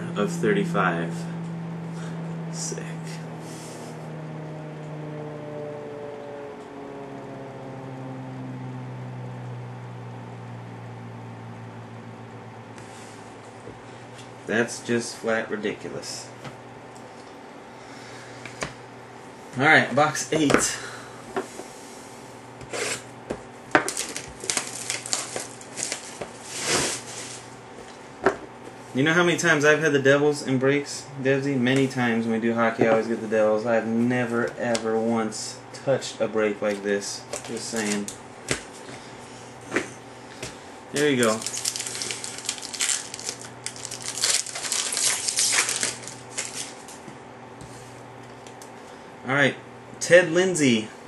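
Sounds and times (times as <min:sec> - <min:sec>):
shrink wrap tearing and crinkling: 0:23.8 - 0:27.4, 0:37.3 - 0:38.2, 0:41.0 - 0:47.0.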